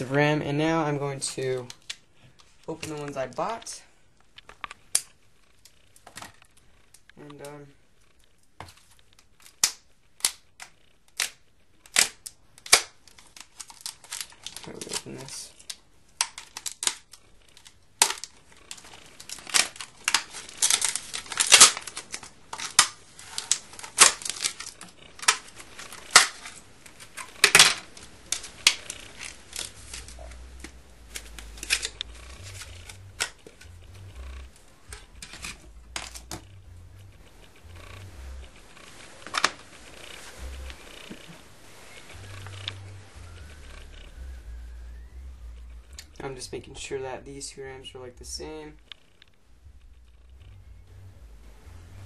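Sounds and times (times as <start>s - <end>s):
plastic blister pack snapping: 9.3s - 33.7s.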